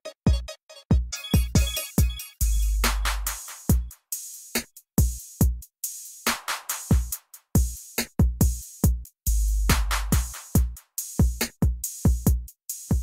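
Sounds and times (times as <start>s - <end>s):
drum beat music: 0.0s - 13.0s.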